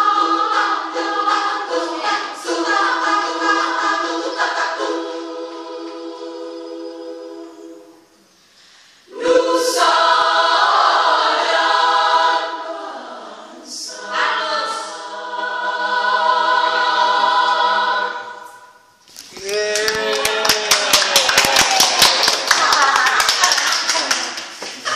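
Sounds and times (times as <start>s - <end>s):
women's choir singing a cappella: 0.0s - 8.2s, 9.0s - 19.0s.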